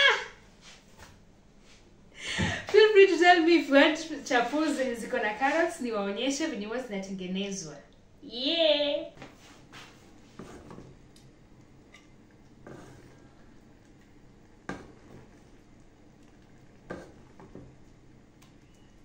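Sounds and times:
soft plops of stew: 0:10.4 - 0:19.0.

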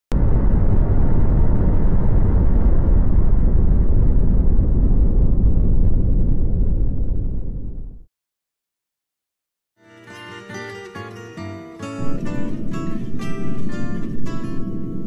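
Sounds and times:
deep rumbling drone: 0:00.1 - 0:08.1, 0:12.0 - 0:15.0.

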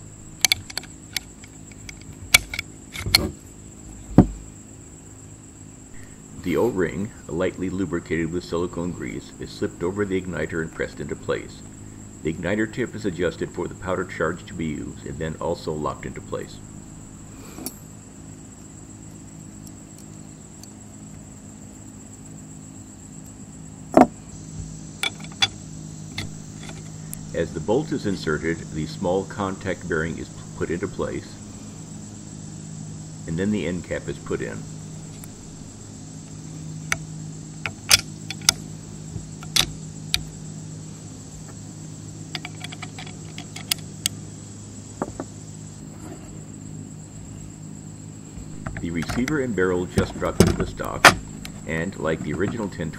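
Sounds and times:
cricket chirring: 0:00.0 - 0:52.9
low steady hum: 0:00.0 - 0:52.9
hex key clicking on metal: 0:00.4 - 0:03.2, 0:25.0 - 0:25.6, 0:26.2 - 0:26.9, 0:37.6 - 0:38.6, 0:39.4 - 0:40.3, 0:42.3 - 0:44.2.

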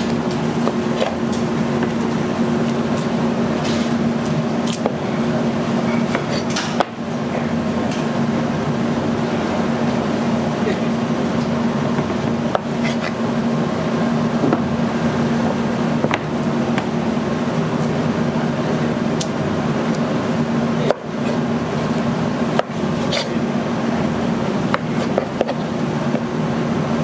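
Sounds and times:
kitchen ventilation hum: 0:00.0 - 0:27.0.

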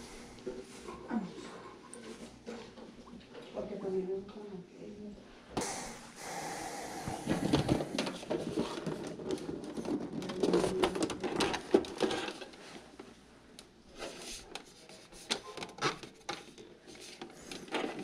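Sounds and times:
plastic case knocking and creaking: 0:07.3 - 0:12.4.

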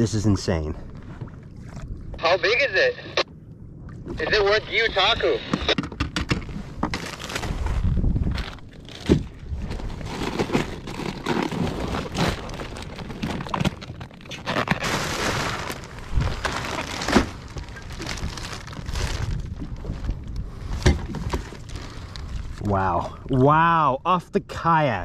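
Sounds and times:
plastic bag crinkling: 0:09.7 - 0:19.5
ice cubes crunching and clattering: 0:09.8 - 0:19.4.

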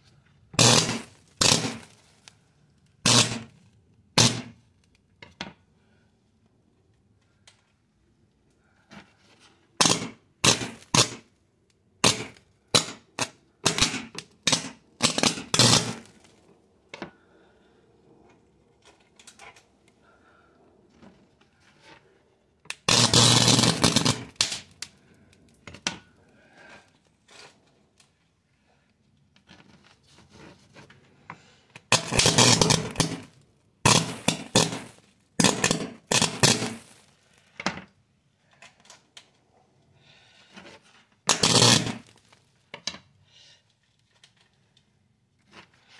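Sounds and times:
hissing spray of sparks: 0:00.6 - 0:01.9, 0:03.1 - 0:03.4, 0:22.9 - 0:24.6, 0:31.9 - 0:33.3, 0:33.9 - 0:37.0
sparks cracking and popping: 0:00.6 - 0:02.4, 0:03.0 - 0:03.6, 0:04.2 - 0:04.7, 0:09.8 - 0:11.3, 0:12.0 - 0:16.5, 0:22.7 - 0:26.0, 0:31.8 - 0:37.4, 0:41.3 - 0:42.4.

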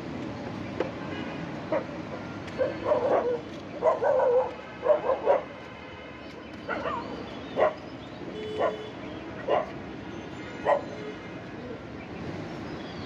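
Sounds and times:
dog barking and yipping: 0:02.6 - 0:05.5, 0:06.7 - 0:07.8, 0:08.6 - 0:08.8, 0:09.5 - 0:09.8, 0:10.6 - 0:10.9.

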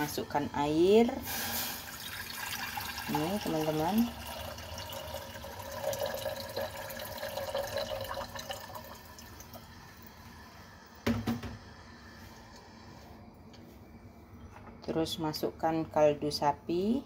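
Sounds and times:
water pouring into a saucepan: 0:01.2 - 0:10.3.

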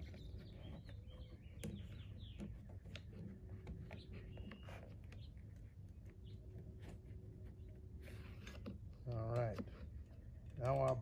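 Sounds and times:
birds chirping: 0:00.0 - 0:11.0
plastic tubing clicking and rustling: 0:08.3 - 0:11.0.

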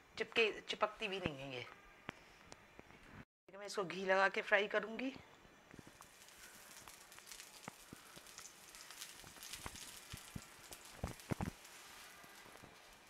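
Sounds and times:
ghee sizzling on hot pan: 0:05.5 - 0:13.0.

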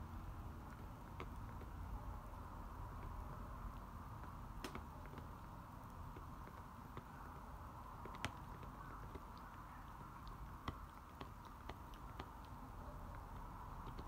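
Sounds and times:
dog teeth clicking on bone: 0:07.9 - 0:14.0.

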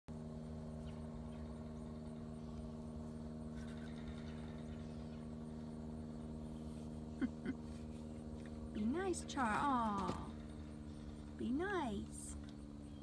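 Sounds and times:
motor humming: 0:00.1 - 0:13.0.

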